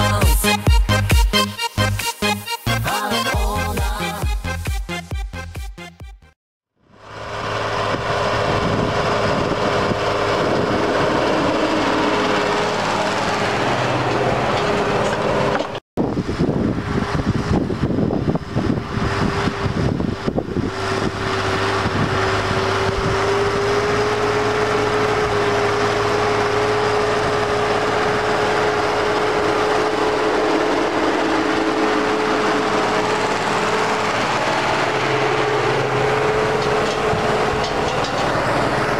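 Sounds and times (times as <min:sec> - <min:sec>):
tractor diesel engine under load: 0:00.0 - 0:04.7, 0:06.8 - 0:38.9.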